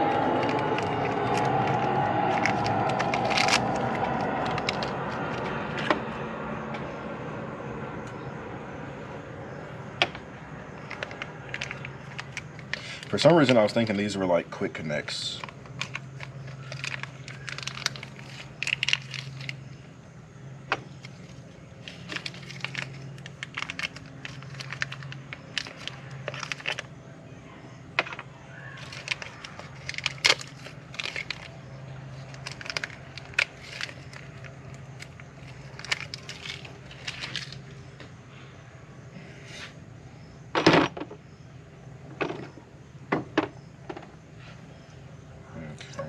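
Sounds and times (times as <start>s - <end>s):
steady low hum: 0.0s - 46.0s
plastic bag crinkling: 15.7s - 19.6s, 21.0s - 26.9s, 28.8s - 37.7s.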